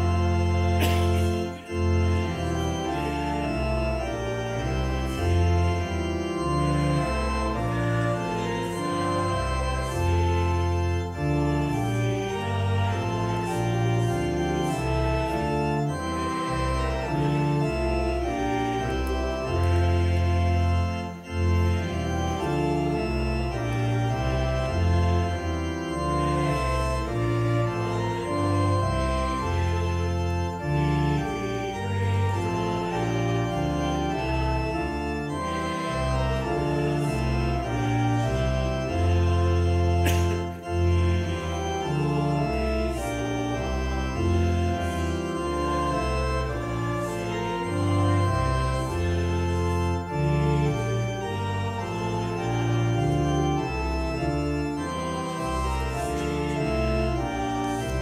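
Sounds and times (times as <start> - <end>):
church organ playing a hymn: 0.0 - 58.0.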